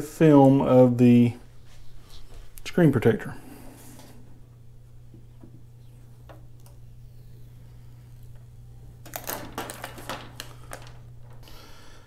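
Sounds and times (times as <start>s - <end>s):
steady low hum: 0.0s - 12.0s
plastic film peeling clicks: 9.0s - 11.4s.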